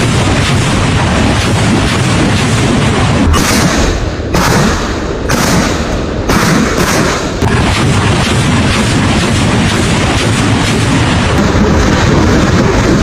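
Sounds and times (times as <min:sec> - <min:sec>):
dense rocket roar: 0:00.0 - 0:13.0
rocket launch blasts: 0:00.0 - 0:13.0.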